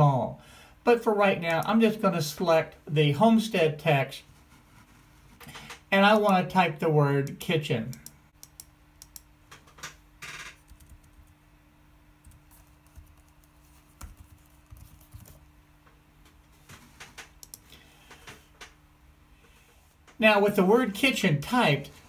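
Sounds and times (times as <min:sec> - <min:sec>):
faint steady hum: 0:00.0 - 0:22.0
laptop keys clicking: 0:08.0 - 0:09.9, 0:10.6 - 0:11.3, 0:12.2 - 0:15.4, 0:17.3 - 0:17.7.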